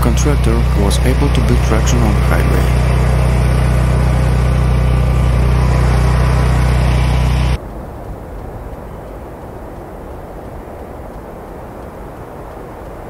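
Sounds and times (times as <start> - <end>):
car road noise: 0.0 - 7.6
low hum: 0.0 - 11.8.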